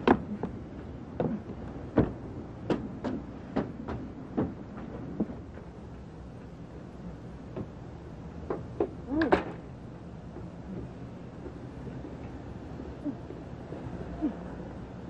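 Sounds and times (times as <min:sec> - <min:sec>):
footsteps on a porch: 0:00.0 - 0:06.5, 0:10.2 - 0:14.1.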